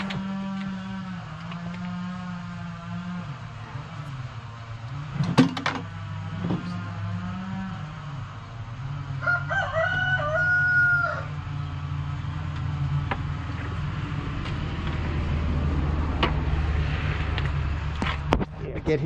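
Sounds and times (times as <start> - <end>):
steady low hum: 0.0 - 19.0
rooster crowing: 9.0 - 11.6.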